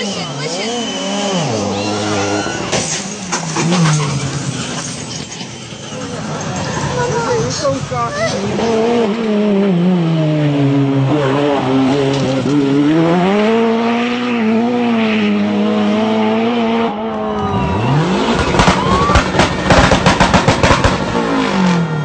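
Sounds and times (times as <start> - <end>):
rally car engine at full throttle: 0.0 - 22.0
car engine revving hard: 8.3 - 22.0
loud bangs and pops: 18.3 - 21.3.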